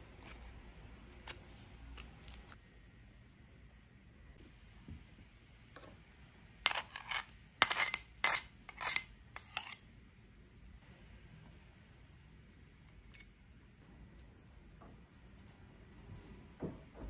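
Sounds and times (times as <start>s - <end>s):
knife clinking on ceramic: 6.6s - 9.9s.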